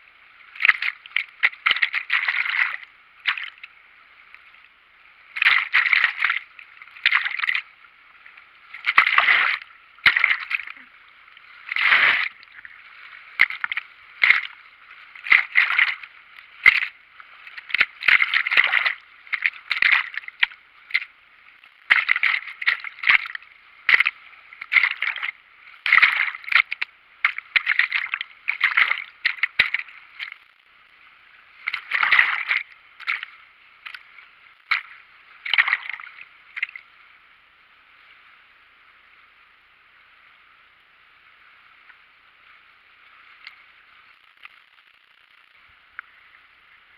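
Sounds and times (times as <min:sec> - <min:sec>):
river water splashing: 0:00.0 - 0:30.4, 0:31.1 - 0:36.9
faint rush of water: 0:00.0 - 0:46.9.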